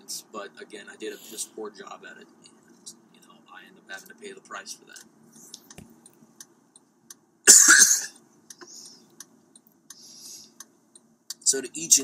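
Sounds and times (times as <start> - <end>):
man coughing: 7.5 - 8.8
faint ticking clicks: 8.5 - 11.5.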